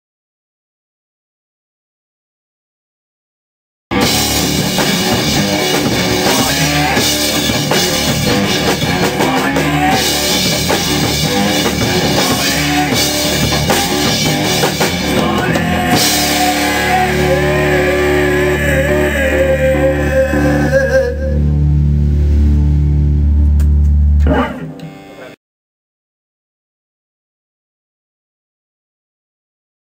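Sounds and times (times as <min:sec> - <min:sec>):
drum kit with cymbals: 0:03.9 - 0:18.7
bass guitar: 0:03.9 - 0:25.4
electric guitar: 0:03.9 - 0:25.4
man singing: 0:06.1 - 0:08.1, 0:09.0 - 0:21.5.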